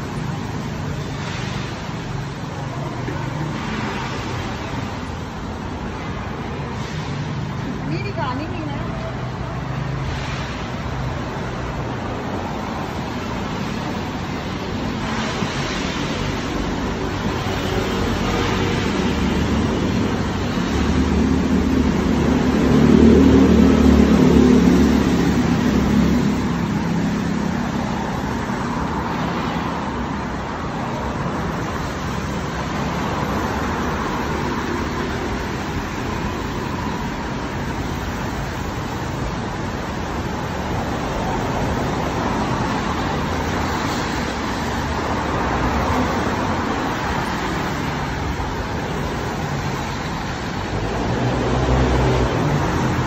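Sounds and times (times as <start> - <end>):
traffic on wet road: 0.0 - 53.0
vehicle passing close by: 14.5 - 39.7, 40.3 - 53.0.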